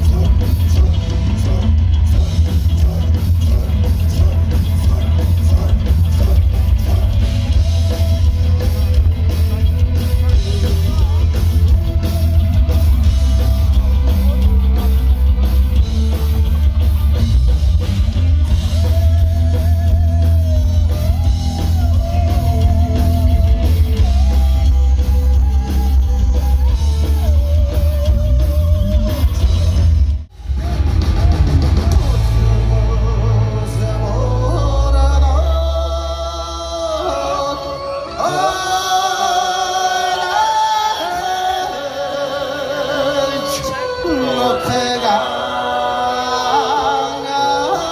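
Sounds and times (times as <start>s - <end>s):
drum kit: 0.0s - 35.6s
booming bass: 0.0s - 35.9s
heavy guitar: 0.0s - 47.9s.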